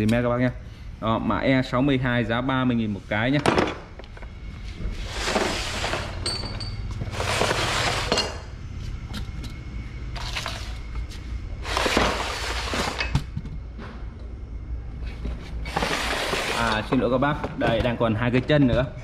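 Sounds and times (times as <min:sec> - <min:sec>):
low steady hum: 0:00.0 - 0:19.0
metal parts clinking: 0:06.2 - 0:06.9.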